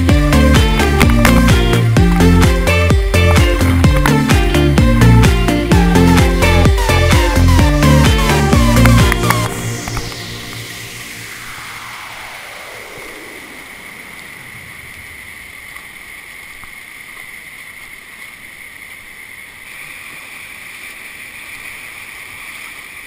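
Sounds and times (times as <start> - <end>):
electronic sweep: 0.0 - 15.7
river rushing around boulders: 0.0 - 23.0.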